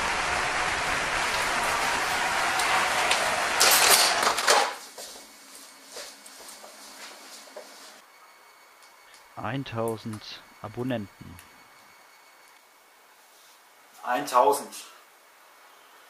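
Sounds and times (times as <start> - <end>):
crowd applause and cheering: 0.0 - 4.5.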